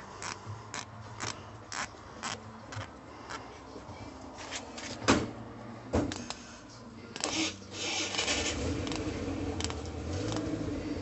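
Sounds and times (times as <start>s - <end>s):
coil spring rasping: 0.2s - 3.4s
sharp metallic clicks: 7.2s - 10.6s.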